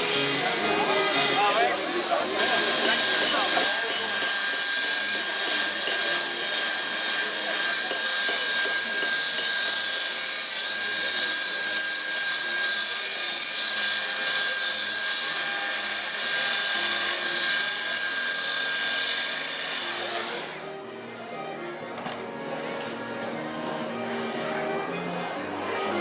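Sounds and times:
faint background music: 0.0s - 26.0s
chainsaw cutting wood: 2.4s - 20.6s.

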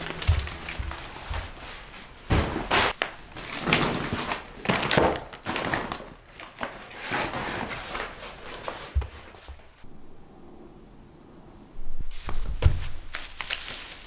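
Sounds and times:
plastic bags crinkling: 0.0s - 8.1s, 13.0s - 14.0s
bag thumping on floor: 2.3s - 3.0s.

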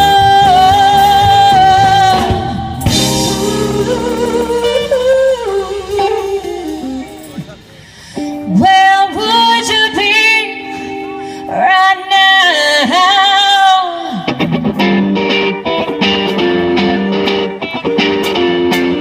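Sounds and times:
woman singing: 0.0s - 7.3s, 8.4s - 14.3s
live band playing: 0.0s - 19.0s
rhythmic electric guitar chords: 0.0s - 19.0s.

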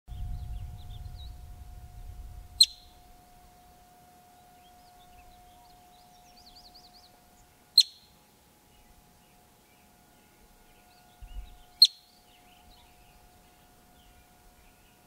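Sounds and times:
marmot whistled alarm chirps: 2.6s - 3.0s, 7.8s - 8.1s, 11.8s - 12.1s.

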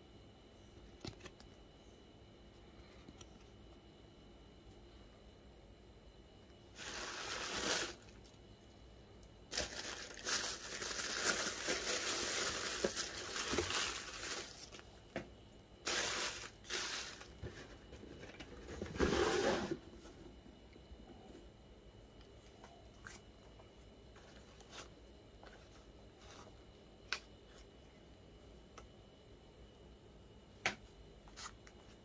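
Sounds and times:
tissue paper crinkling: 6.8s - 8.1s, 9.5s - 14.8s, 15.8s - 17.4s.

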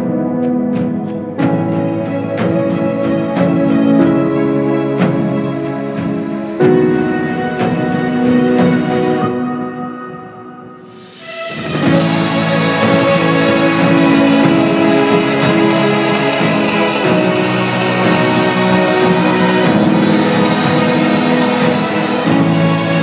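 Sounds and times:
music with steady beat: 0.0s - 23.0s.

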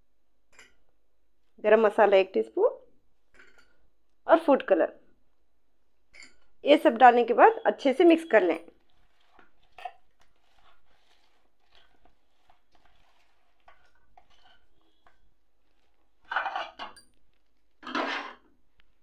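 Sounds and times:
scrapes in bowl: 8.9s - 15.2s, 17.8s - 18.5s.

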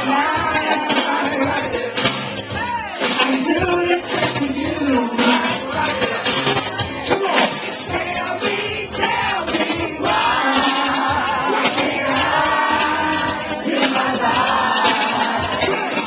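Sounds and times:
man singing into microphone: 0.0s - 2.0s
crowd singing along: 0.0s - 16.0s.

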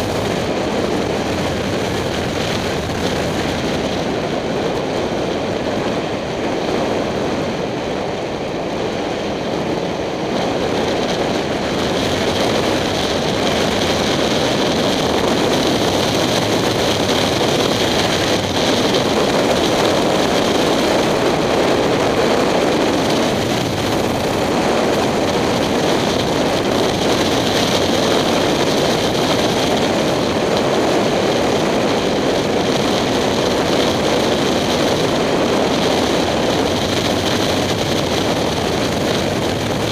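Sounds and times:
motorcycle engine running: 0.0s - 7.5s
wind rushing over microphone: 0.0s - 39.9s.

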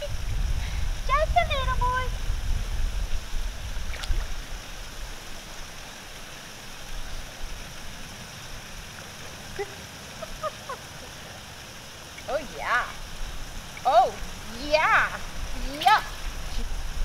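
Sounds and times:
steady outdoor hiss: 0.0s - 17.0s
small splash in water: 3.9s - 4.4s.

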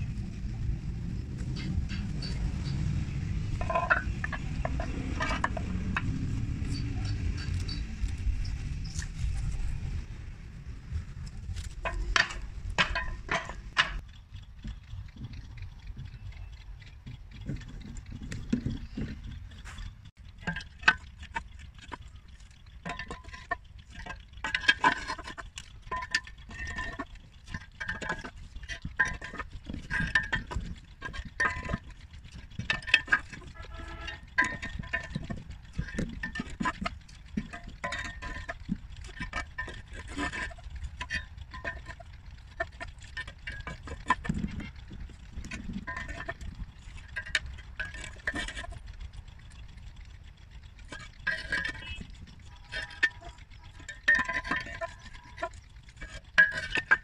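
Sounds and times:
metal clanking on concrete pole: 0.0s - 10.1s, 11.5s - 57.0s
low rumble: 0.0s - 54.1s.

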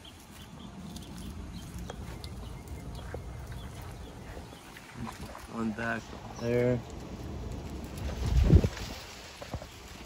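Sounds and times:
low outdoor rumble: 0.0s - 10.0s.

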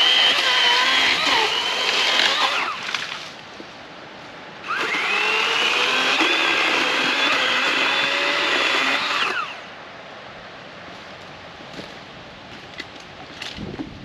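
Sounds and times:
battery chainsaw whining: 0.0s - 2.8s, 4.7s - 9.6s.

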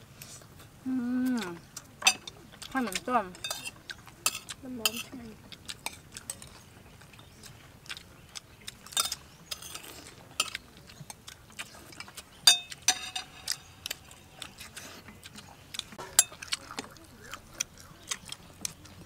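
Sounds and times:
spoons clinking against plates: 2.0s - 2.3s, 3.4s - 5.1s, 8.9s - 10.6s, 12.0s - 14.1s, 16.0s - 16.6s.

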